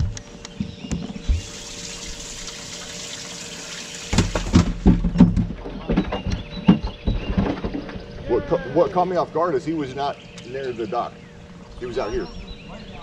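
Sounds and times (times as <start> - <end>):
water running into a tank: 1.2 - 5.6
knocks and thumps of fish: 4.0 - 8.1.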